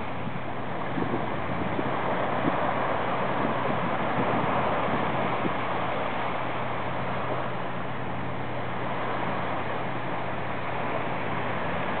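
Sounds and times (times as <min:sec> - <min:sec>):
small waves washing onto beach: 0:00.0 - 0:12.0
wind on microphone: 0:00.0 - 0:12.0.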